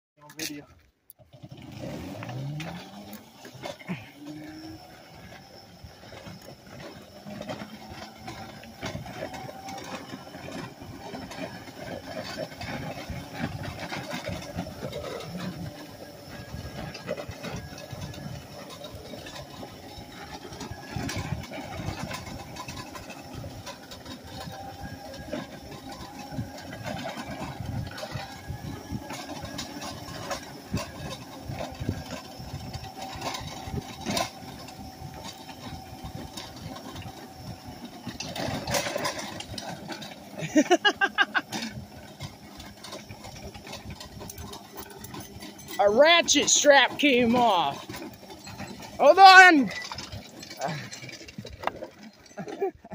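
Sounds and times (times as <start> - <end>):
wheels and trailer rattling: 0.2 - 52.9
toy car electric motor whining: 1.2 - 52.8.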